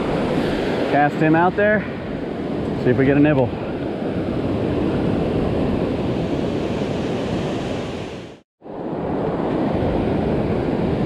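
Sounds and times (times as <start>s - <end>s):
waves breaking on a beach: 0.0s - 11.0s
wind buffeting microphone: 0.0s - 11.0s.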